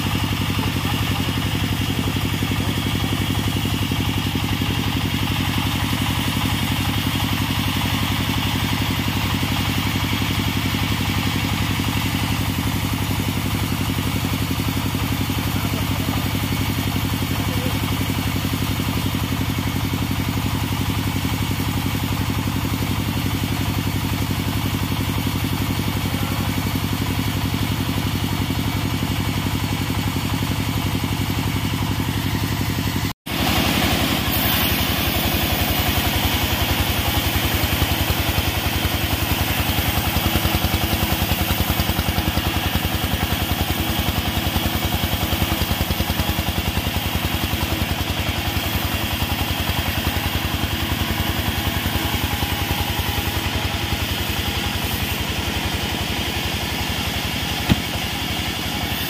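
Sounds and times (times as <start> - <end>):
stationary engine running: 0.0 - 59.0
saw cutting log: 32.2 - 59.0.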